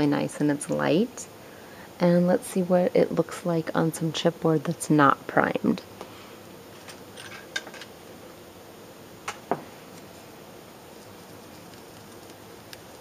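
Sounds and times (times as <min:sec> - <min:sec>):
steady low hiss: 0:00.0 - 0:13.0.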